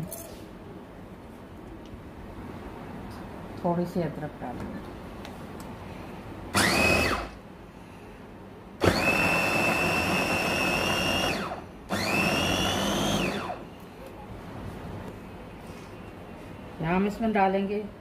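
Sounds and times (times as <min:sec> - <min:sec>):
food chopper motor whining: 0:06.5 - 0:07.4, 0:08.8 - 0:13.6.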